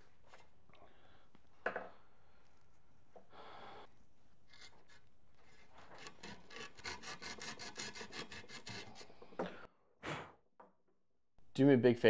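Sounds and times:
sandpaper scraping wood: 0:05.4 - 0:09.2.

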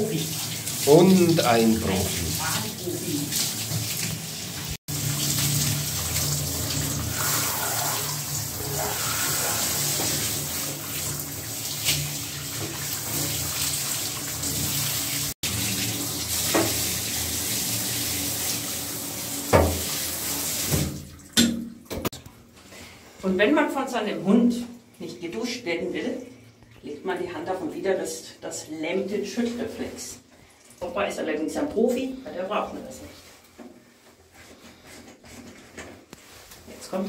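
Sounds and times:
shower water spraying: 0:00.0 - 0:21.1.

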